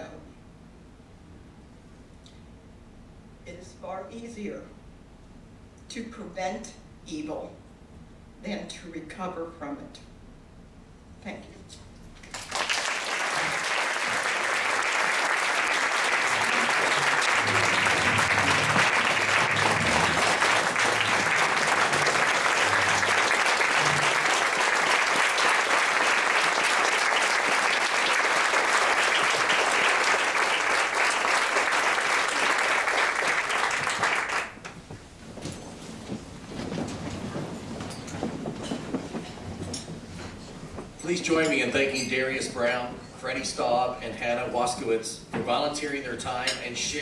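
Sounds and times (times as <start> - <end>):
audience applauding: 12.2 - 34.8.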